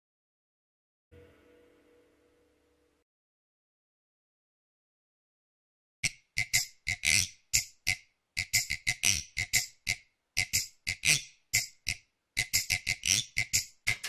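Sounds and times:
dry rattling percussion: 6.2s - 14.0s.

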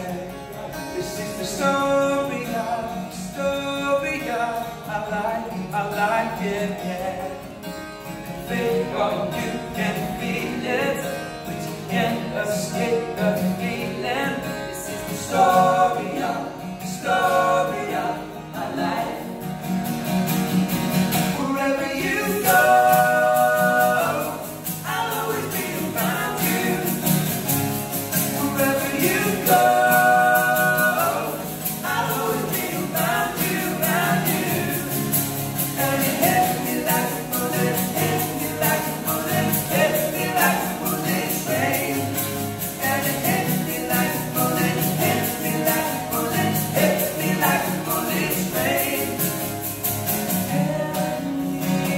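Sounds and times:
men singing in harmony: 0.0s - 7.6s, 8.3s - 19.6s, 21.1s - 51.9s
strummed acoustic guitars: 0.0s - 51.9s.

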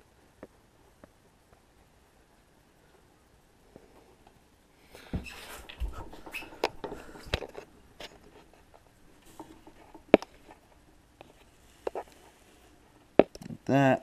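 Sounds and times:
handling rustling and scratching: 5.2s - 13.1s.

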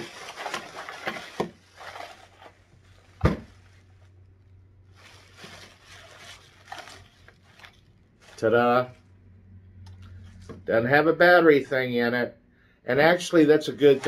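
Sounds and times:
plastic bag crinkling: 0.0s - 9.2s, 13.7s - 14.0s
plastic bag snapping: 4.9s - 8.5s.

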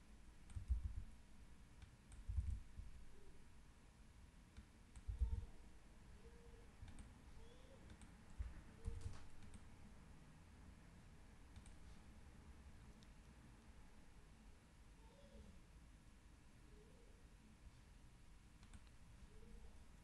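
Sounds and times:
computer mouse and keyboard clicks: 0.5s - 1.0s, 6.8s - 7.1s, 7.8s - 9.7s.

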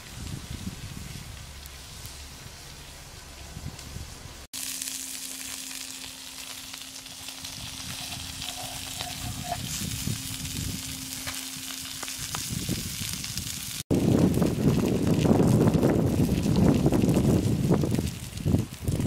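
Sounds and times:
liver sizzling on hot stone: 4.5s - 19.0s.

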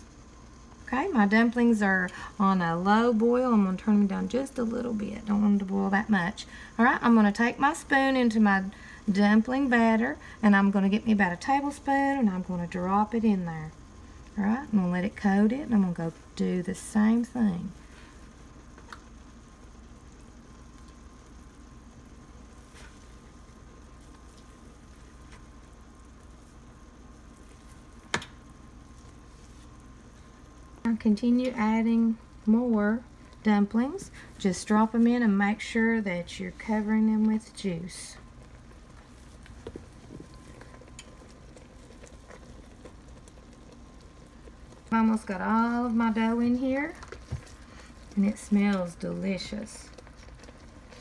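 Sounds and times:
juice bubbling in a pot: 0.0s - 51.0s
dough dropped into liquid: 28.0s - 28.4s.

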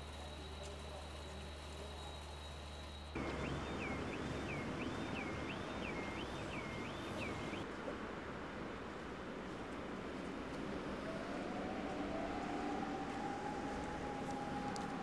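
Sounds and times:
street noise: 2.6s - 15.0s
emergency siren wailing: 3.2s - 7.6s, 10.8s - 15.0s.

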